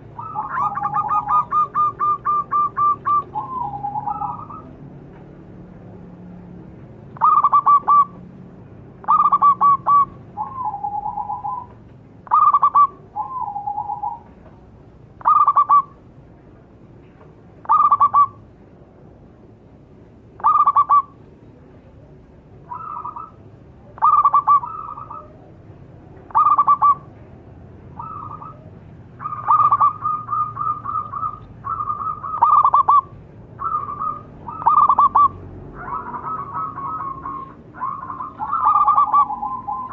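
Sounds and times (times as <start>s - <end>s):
dove cooing: 0.0s - 4.8s, 7.2s - 8.2s, 9.0s - 14.4s, 15.2s - 16.0s, 17.6s - 18.4s, 20.4s - 21.2s, 21.9s - 25.6s, 26.2s - 27.2s, 27.9s - 39.9s.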